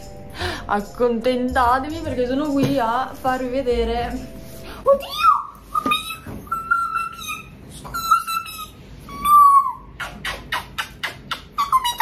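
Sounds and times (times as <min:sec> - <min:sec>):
small dog whining: 0:05.2 - 0:12.0.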